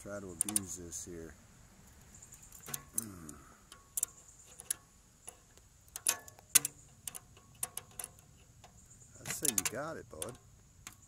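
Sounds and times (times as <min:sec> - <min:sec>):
pliers clicking on metal tubing: 0:00.4 - 0:00.7, 0:02.5 - 0:11.0.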